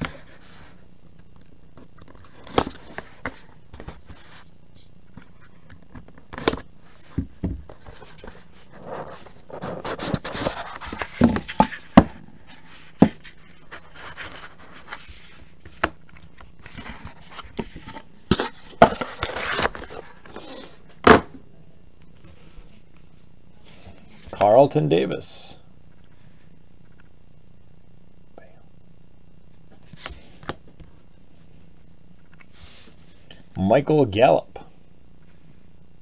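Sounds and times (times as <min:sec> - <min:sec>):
cardboard scraping and rustling: 0:06.3 - 0:15.9, 0:16.6 - 0:20.8.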